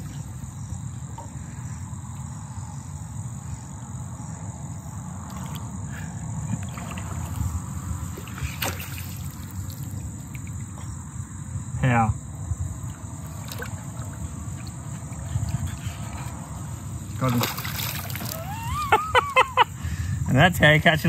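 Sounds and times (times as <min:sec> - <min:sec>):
crickets chirping: 0:00.0 - 0:21.0
water swishing and splashing: 0:05.0 - 0:11.2, 0:12.6 - 0:19.2.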